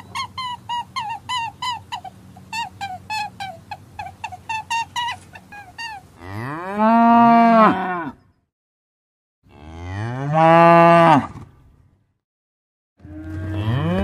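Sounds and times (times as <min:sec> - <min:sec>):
cow mooing: 0:06.2 - 0:08.2, 0:09.5 - 0:11.3, 0:13.0 - 0:14.0.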